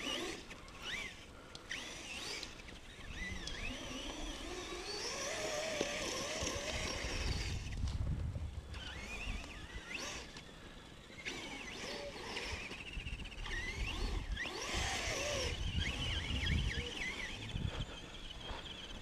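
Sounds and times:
electric motors whining: 0.0s - 19.0s
wind rumble on microphone: 6.4s - 9.8s, 12.9s - 18.5s.

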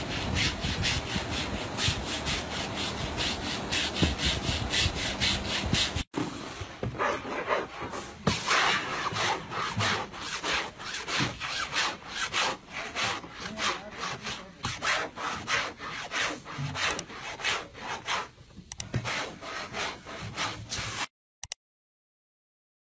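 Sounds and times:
board rasping on denim: 0.0s - 21.1s.

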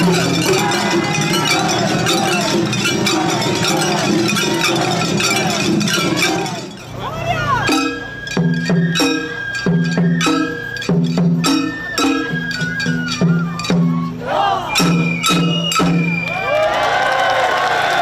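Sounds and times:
hand cymbals clashing: 0.0s - 16.2s
drums: 0.0s - 18.0s
held flute note: 7.5s - 16.5s.

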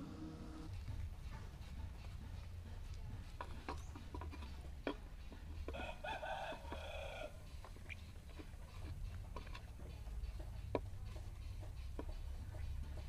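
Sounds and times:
rooster crowing: 5.7s - 7.4s.

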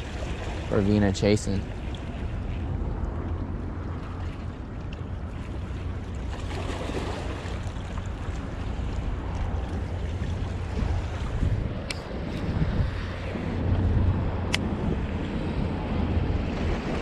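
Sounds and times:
wind buffeting microphone: 0.0s - 17.0s
small waves washing on rocks: 6.3s - 11.3s.

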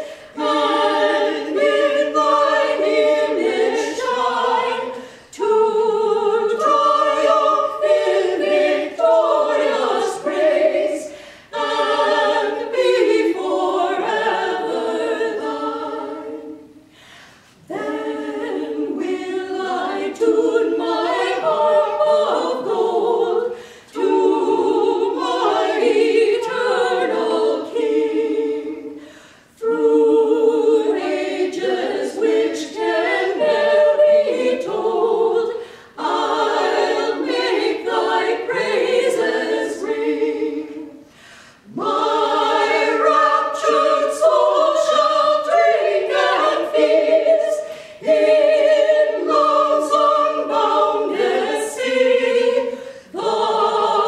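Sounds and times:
singers breathing: 0.0s - 0.4s, 5.0s - 5.4s, 11.1s - 11.6s, 16.8s - 17.6s, 23.5s - 24.0s, 29.0s - 29.6s, 35.6s - 36.0s, 41.0s - 41.7s, 47.6s - 48.0s, 52.7s - 53.2s
women singing in harmony: 0.0s - 54.0s.

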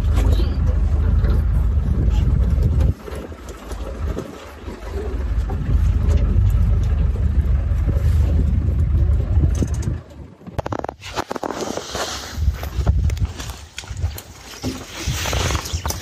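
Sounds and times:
vehicle low rumble: 0.0s - 16.0s
rapid clicks and rattles: 8.6s - 11.8s.

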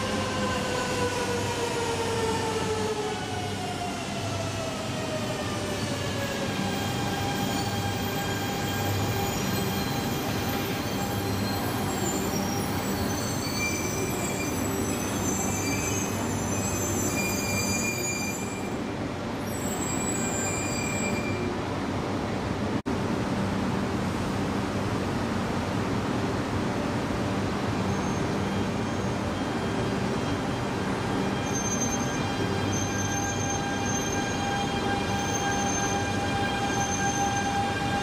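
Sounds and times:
wheel squeals: 7.5s - 18.8s, 27.9s - 37.9s.

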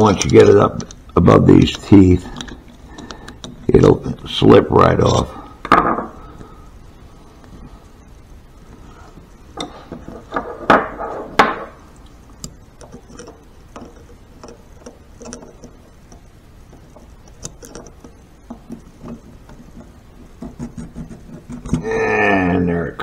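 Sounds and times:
metal ticks and scrapes: 12.4s - 21.8s.

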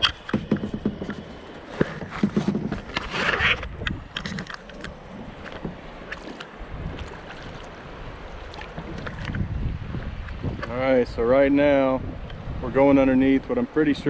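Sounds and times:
paddle knocks: 0.0s - 7.7s
water splashing around kayak: 0.0s - 14.0s.

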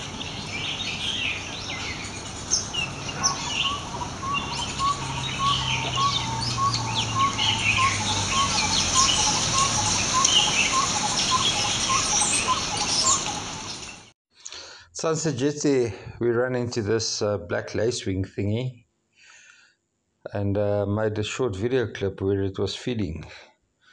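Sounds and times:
birds chirping and twittering: 0.0s - 14.1s.

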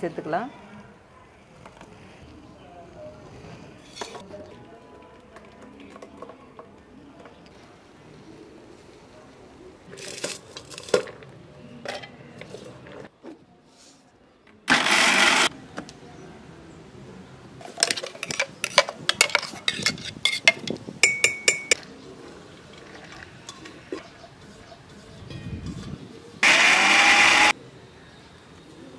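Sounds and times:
mixer grinder running: 14.7s - 15.5s, 26.4s - 27.5s
steel spoon clinking on jar: 18.2s - 21.8s.

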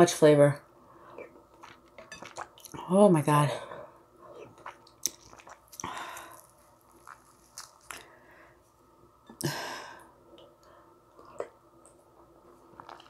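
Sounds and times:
chewing: 1.2s - 2.8s, 4.4s - 8.1s, 12.8s - 13.0s.

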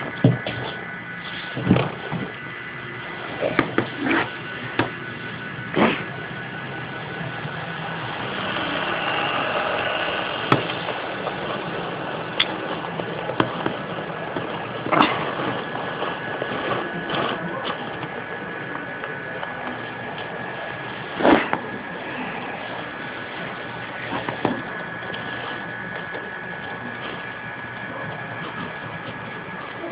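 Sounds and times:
model train motor whine: 0.0s - 29.9s.

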